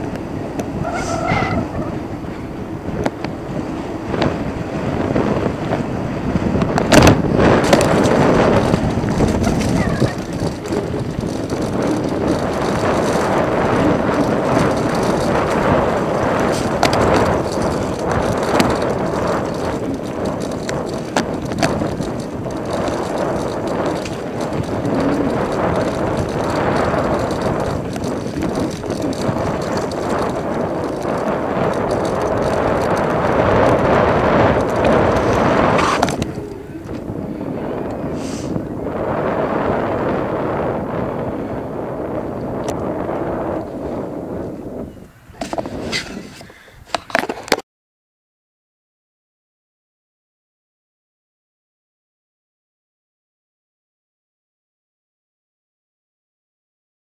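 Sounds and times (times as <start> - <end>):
wind on microphone: 0.0 - 47.6
bike rattles and knocks: 2.6 - 38.1, 45.3 - 47.6.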